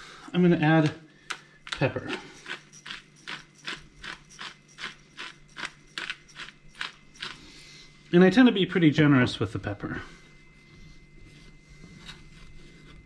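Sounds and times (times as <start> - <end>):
pepper mill grinding clicks: 1.2 - 7.4.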